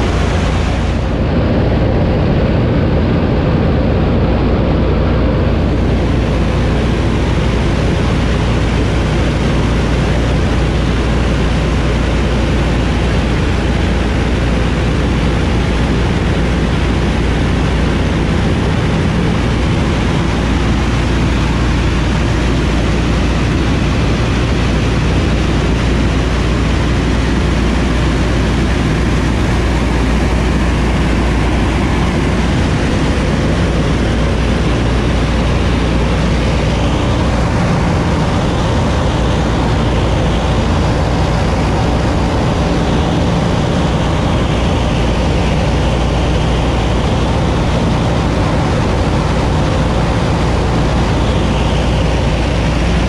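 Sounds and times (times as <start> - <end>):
aircraft radial engines droning: 0.0 - 53.0.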